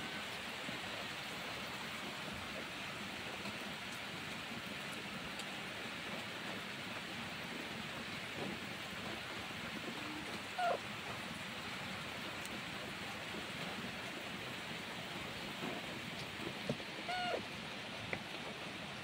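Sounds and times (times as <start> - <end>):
rain hissing: 0.0 - 19.0
kitten mewing: 10.5 - 10.8, 17.0 - 17.5.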